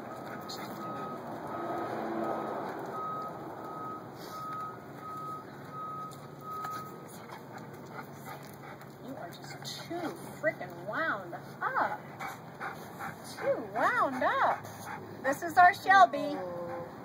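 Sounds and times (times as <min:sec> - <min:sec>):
vehicle reversing alarm beeping: 0:00.0 - 0:07.9.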